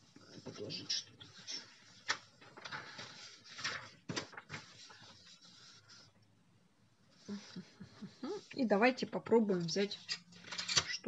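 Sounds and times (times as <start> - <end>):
paper rustling and sliding: 0.0 - 6.2.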